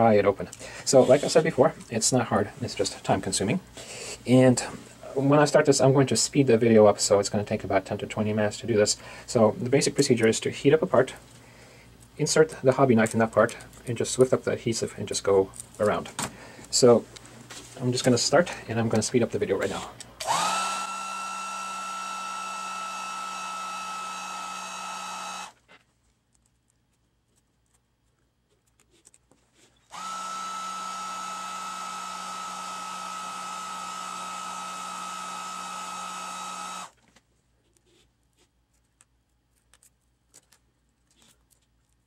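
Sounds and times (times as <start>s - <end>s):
heat gun whining: 19.6s - 25.6s, 29.9s - 37.0s.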